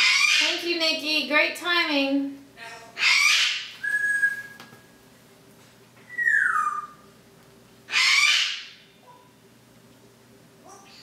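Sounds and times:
parrot whistling: 0.0s - 0.4s, 3.0s - 4.6s, 6.1s - 7.1s
parrot squawking: 0.0s - 0.6s, 2.6s - 4.3s, 6.1s - 7.0s, 7.9s - 9.3s.

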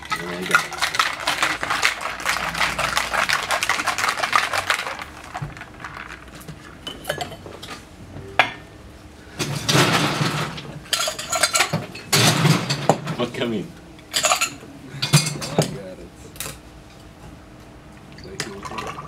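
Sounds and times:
ice rattling in cocktail shaker: 0.0s - 7.2s.

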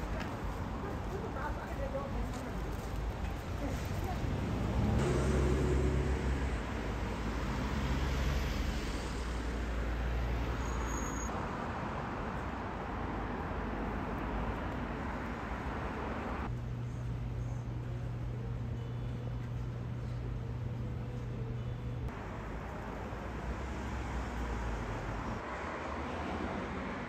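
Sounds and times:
city traffic passing: 0.0s - 27.0s.

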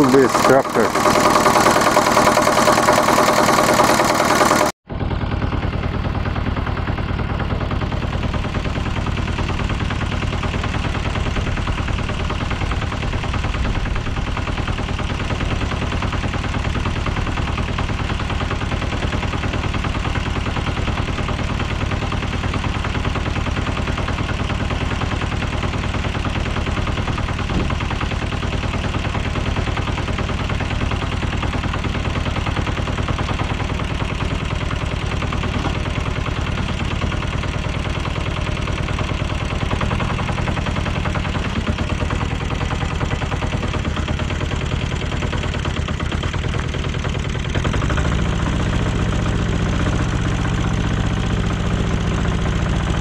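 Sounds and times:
single-cylinder engine puttering: 0.0s - 53.0s.

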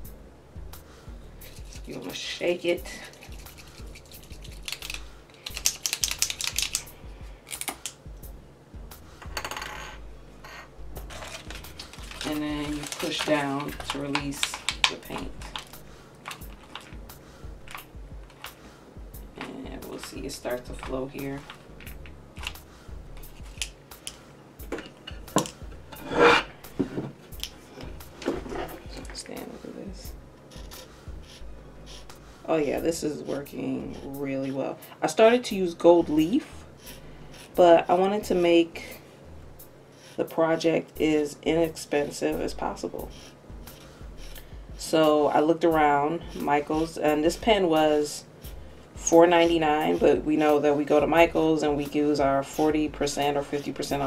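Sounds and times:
paint pen ball rattling: 3.0s - 6.9s, 11.1s - 17.0s, 19.9s - 22.6s
plastic crinkling: 11.1s - 17.0s
tile scraping on desk: 25.9s - 27.1s.

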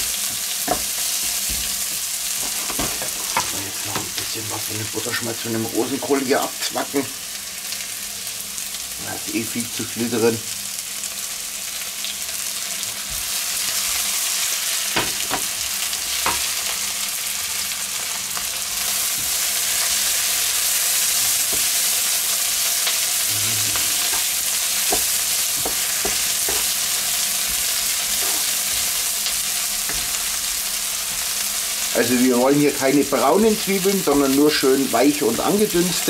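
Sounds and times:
onions sizzling in butter: 0.0s - 36.0s
wooden spatula scraping a wok: 0.2s - 4.2s, 23.1s - 31.4s.

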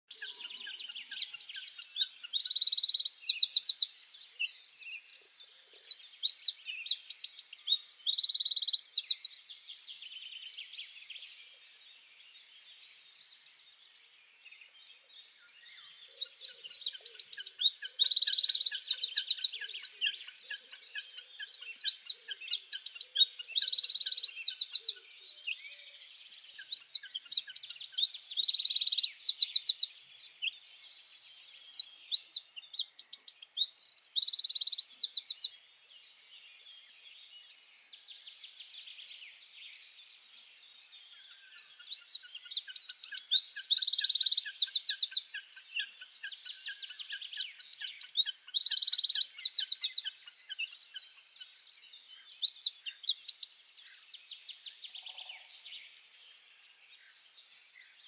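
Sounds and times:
wren singing fast trills: 0.0s - 11.2s, 15.5s - 35.6s, 41.0s - 57.2s.

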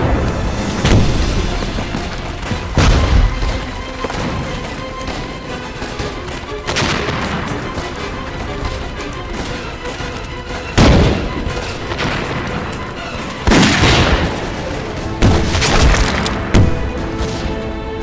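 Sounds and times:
loud explosion booms: 0.0s - 1.6s
dramatic background music: 0.0s - 18.0s
scattered gunshots: 13.4s - 16.7s.

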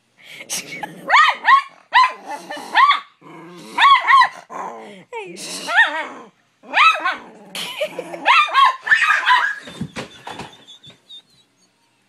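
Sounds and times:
dog barking and yipping: 1.1s - 3.2s, 3.8s - 4.5s, 6.7s - 7.2s, 8.2s - 9.8s.

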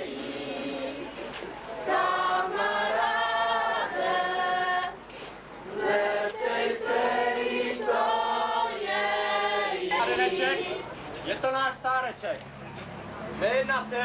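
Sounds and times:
group of voices singing: 0.0s - 11.1s.

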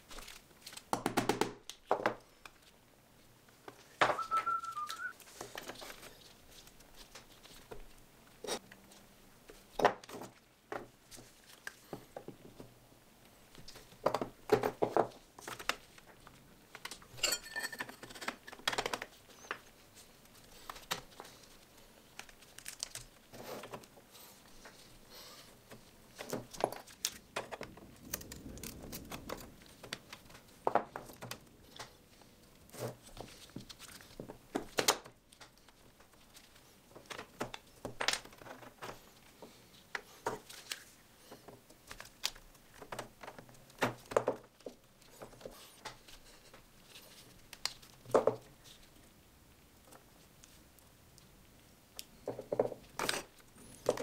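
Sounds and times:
glass and tools clinking: 17.1s - 18.3s.

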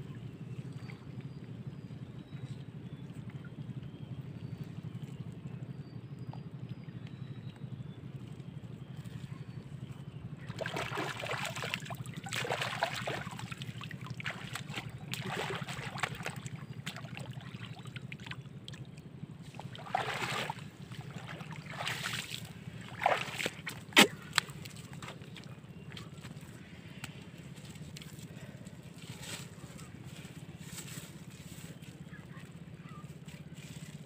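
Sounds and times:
steady low hum: 0.0s - 34.0s
muddy water sloshing and splashing: 0.1s - 34.0s
mud squelching: 8.8s - 34.0s.

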